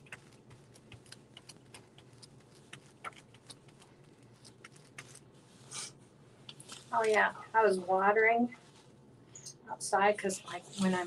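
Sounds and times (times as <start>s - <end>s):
paper being pressed and smoothed: 0.0s - 6.0s
low steady hum: 0.0s - 11.0s.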